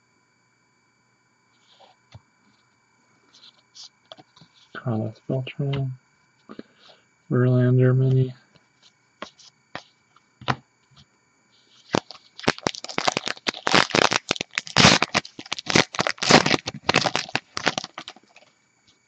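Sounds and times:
wrapper tearing and crinkling: 11.9s - 18.5s.

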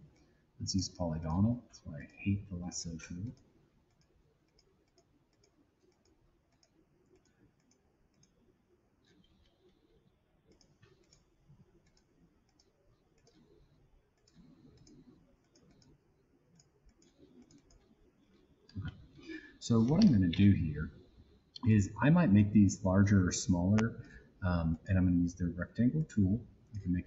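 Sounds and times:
faint computer mouse clicks: 3.2s - 8.4s, 10.5s - 16.0s, 16.6s - 20.2s.

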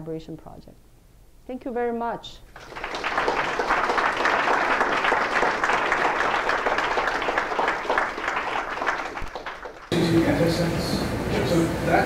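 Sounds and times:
audience clapping: 2.5s - 10.3s.

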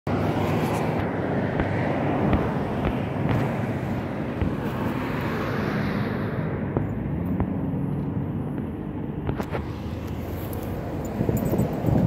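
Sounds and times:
road traffic rumble: 0.1s - 12.0s
vehicle engine hum: 0.1s - 12.0s.

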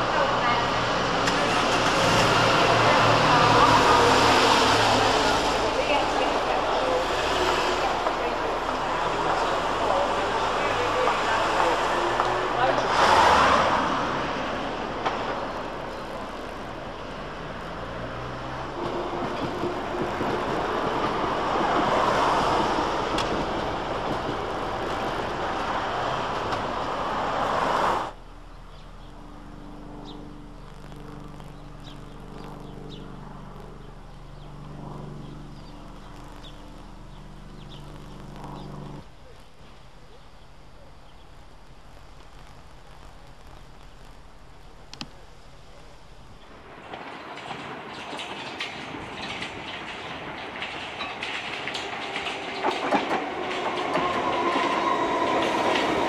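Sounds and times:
cars passing close by: 0.0s - 39.1s.

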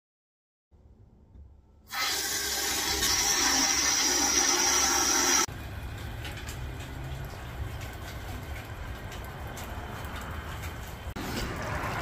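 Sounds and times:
water rushing through a hose: 1.9s - 5.5s.

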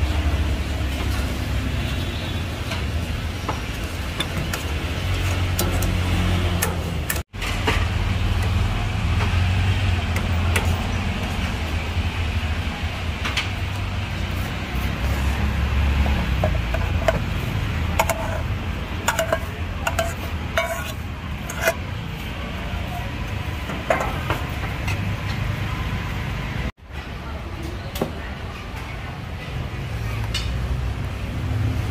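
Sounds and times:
metal ladle clinking against pots: 16.4s - 21.8s.

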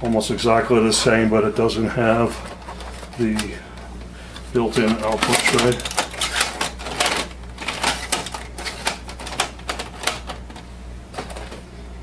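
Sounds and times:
plastic printer tray clicking: 4.8s - 10.5s.

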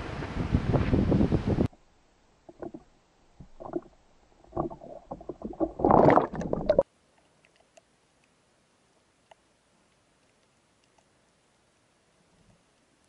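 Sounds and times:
water slapping and gurgling: 2.5s - 6.8s
water splashing rush: 3.4s - 6.8s.

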